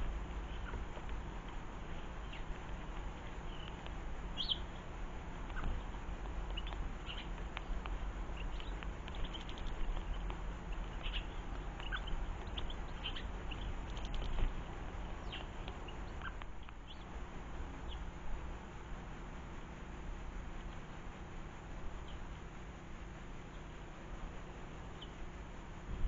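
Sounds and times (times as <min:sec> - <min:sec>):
songbirds chirping: 0:00.0 - 0:25.9
steady low rumble: 0:00.0 - 0:26.0
sharp clicks: 0:02.3 - 0:04.6, 0:05.4 - 0:14.6.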